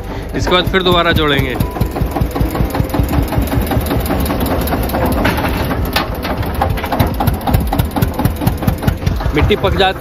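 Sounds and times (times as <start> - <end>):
tractor diesel engine running: 0.0 - 10.0.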